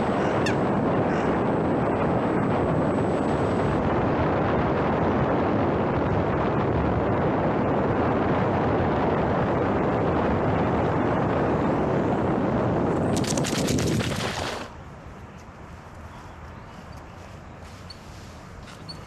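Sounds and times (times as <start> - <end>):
rush of air: 0.0 - 14.8
propeller noise: 0.0 - 15.7.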